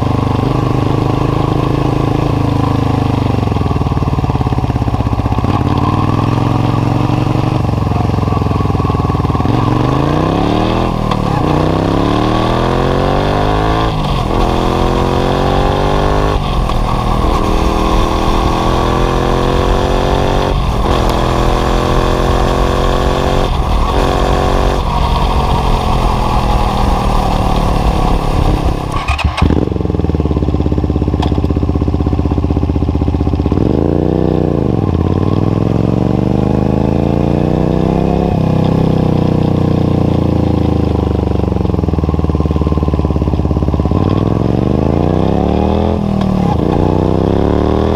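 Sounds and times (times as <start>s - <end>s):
motorcycle engine accelerating: 0.0s - 47.9s
motorcycle idling and revving: 0.0s - 47.9s
wind rushing: 13.3s - 29.0s.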